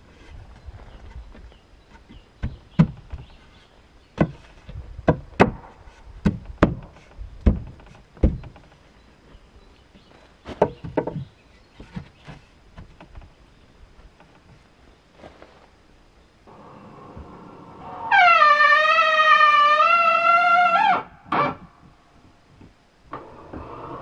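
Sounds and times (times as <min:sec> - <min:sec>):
wooden boards knocking: 0:02.1 - 0:03.3, 0:04.2 - 0:08.7, 0:10.5 - 0:13.3.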